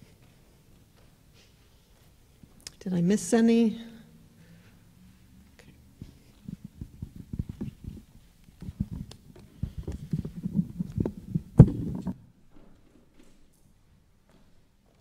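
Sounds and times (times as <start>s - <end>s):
microphone handling thumps: 6.0s - 12.2s.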